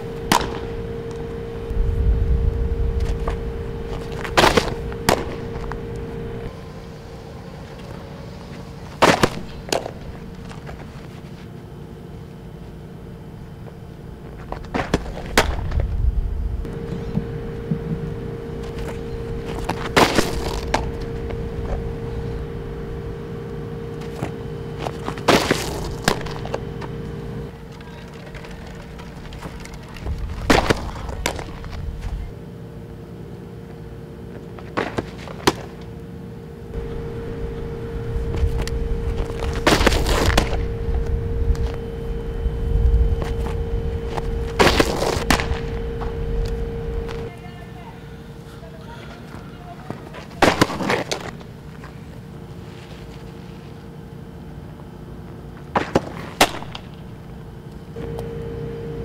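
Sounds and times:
steady hum: 0.0 - 59.0.

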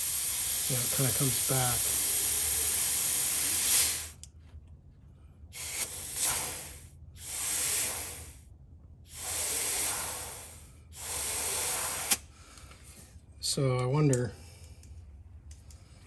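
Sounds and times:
compressed air hissing: 0.0 - 4.2, 5.5 - 8.5, 9.1 - 12.7.

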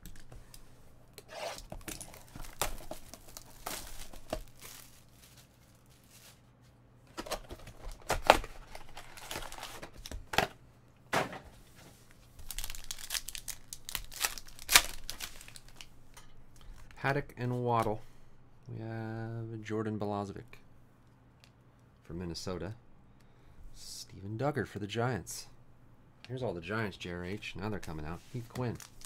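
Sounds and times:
foil pack ripping and crinkling: 1.6 - 6.4, 7.2 - 10.1, 12.4 - 15.9, 28.6 - 29.0.

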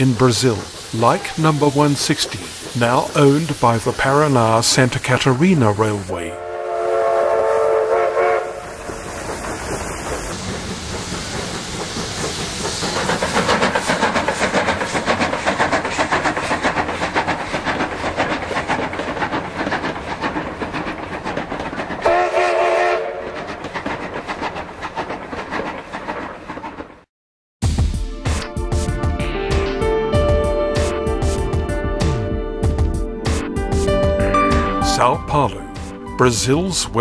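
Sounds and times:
steam locomotive whistle: 6.3 - 8.8, 22.0 - 23.3
train clattering past: 6.8 - 27.1.

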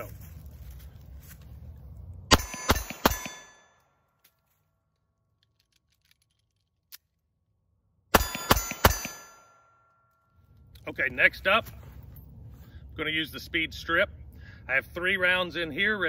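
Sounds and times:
pistol shots: 2.3 - 3.7, 8.1 - 9.6
ringing metallic tone: 2.3 - 4.0, 8.1 - 10.5.

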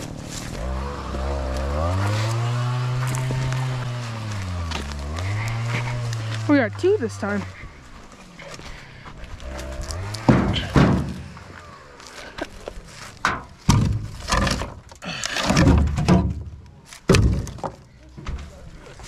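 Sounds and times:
logs thunking into truck bed: 10.2 - 11.4, 13.2 - 18.4.

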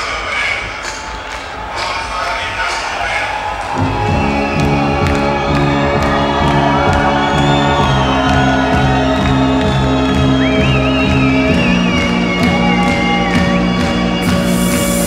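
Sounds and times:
crowd cheering and whooping: 0.7 - 15.0
techno music with bass: 3.8 - 15.0.

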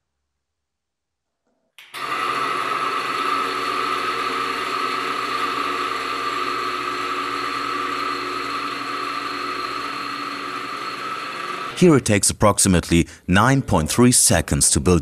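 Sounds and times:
electric motor hum: 1.9 - 11.8.

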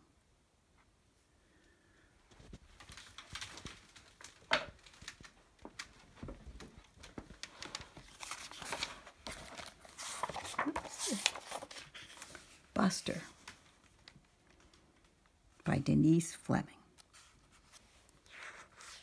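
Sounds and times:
plastic book cover rustling: 2.3 - 15.3, 17.0 - 19.0.

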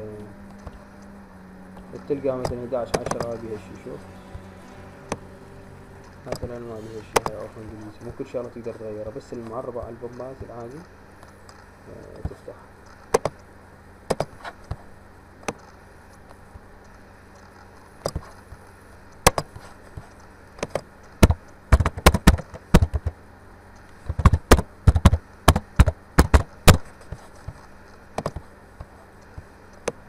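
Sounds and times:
keyboard typing: 6.0 - 7.8.

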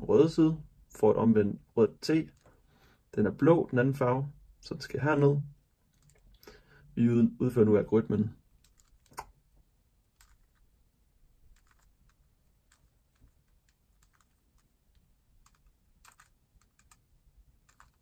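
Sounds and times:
puzzle cube plastic clicks: 8.5 - 9.4, 10.0 - 10.7, 11.4 - 18.0.

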